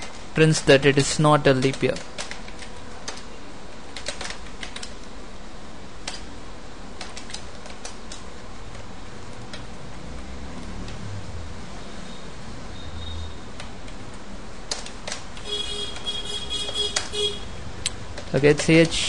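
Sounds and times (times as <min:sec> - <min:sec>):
keyboard key clicks: 0:01.5 - 0:03.2, 0:04.0 - 0:05.0, 0:13.6 - 0:17.2.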